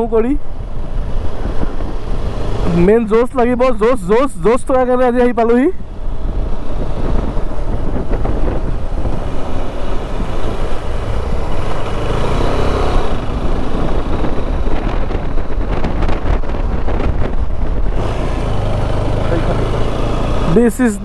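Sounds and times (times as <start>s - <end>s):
wind buffeting microphone: 0.4s - 3.1s, 5.8s - 20.7s
motorcycle engine running: 5.8s - 21.0s.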